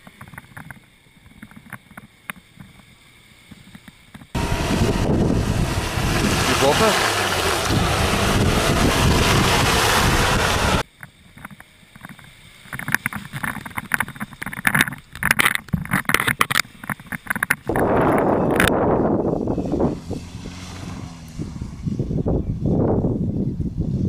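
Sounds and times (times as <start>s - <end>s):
wind on microphone: 4.4s - 10.8s, 13.1s - 24.0s.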